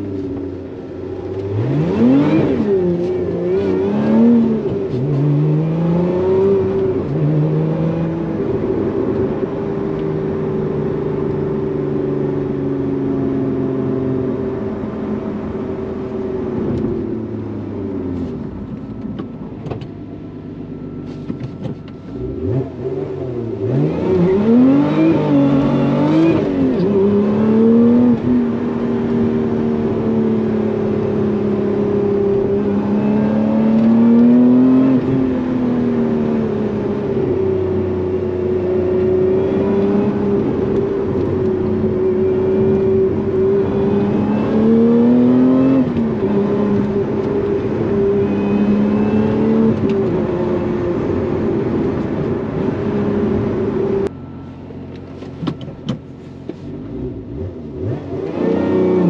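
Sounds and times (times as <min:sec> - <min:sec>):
car engine revving: 0:00.0 - 0:09.7, 0:21.1 - 0:56.0, 0:56.8 - 0:59.0.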